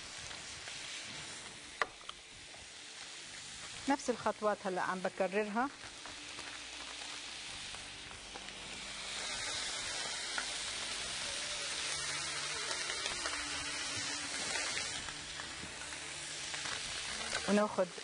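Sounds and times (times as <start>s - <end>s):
chicken sizzling on grill: 0.0s - 18.0s.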